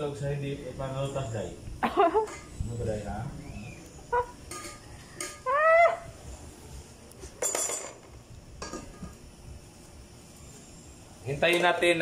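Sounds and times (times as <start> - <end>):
ladle and lid clinking on pots: 4.5 - 5.4.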